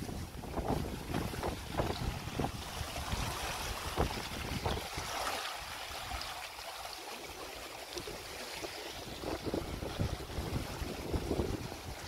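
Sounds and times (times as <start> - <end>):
wind buffeting microphone: 0.0 - 5.2, 8.9 - 12.0
river water rushing: 0.0 - 12.0.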